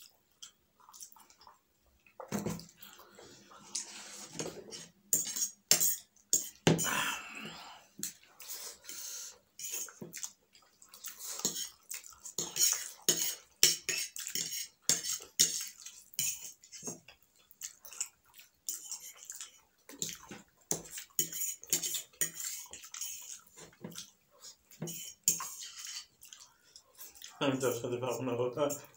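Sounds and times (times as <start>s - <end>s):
noodles being slurped: 2.6s - 27.9s.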